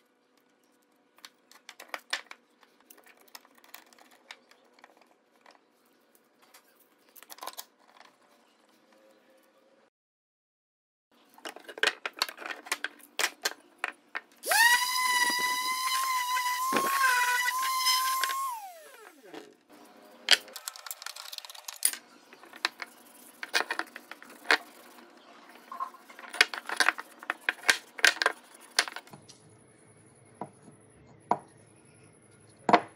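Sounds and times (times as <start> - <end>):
electric power tool whining: 14.4 - 19.4.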